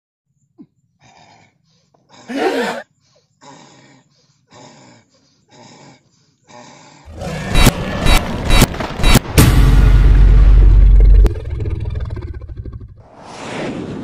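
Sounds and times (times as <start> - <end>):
person grunting: 2.3 - 2.8.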